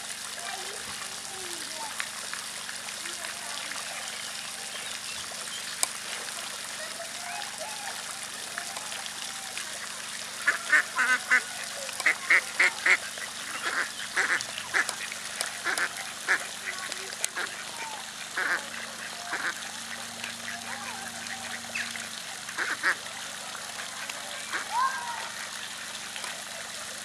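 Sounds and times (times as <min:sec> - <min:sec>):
ducks quacking: 0:06.3 - 0:27.0.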